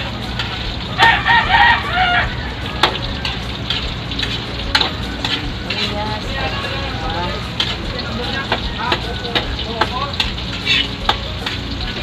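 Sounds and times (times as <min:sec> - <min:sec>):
garlic sizzling in oil: 0:00.0 - 0:12.0
metal spatula knocking wok: 0:02.7 - 0:12.0.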